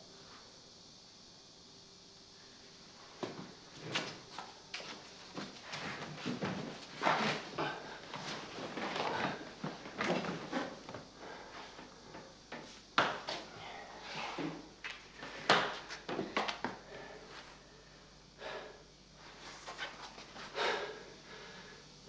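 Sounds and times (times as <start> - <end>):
knocks and rustles of people moving: 3.1 - 17.6, 19.2 - 20.8.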